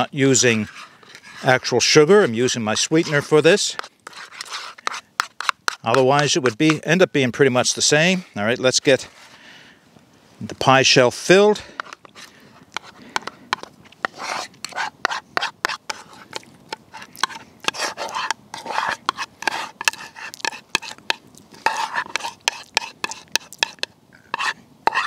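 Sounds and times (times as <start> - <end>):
metal spoon scraping and tapping bowl: 3.1 - 6.8, 11.7 - 25.0.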